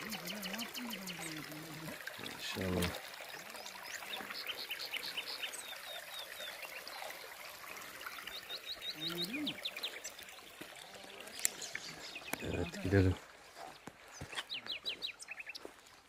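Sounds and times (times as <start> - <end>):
water trickling into trough: 0.0 - 16.0
bird chirping: 11.2 - 13.0.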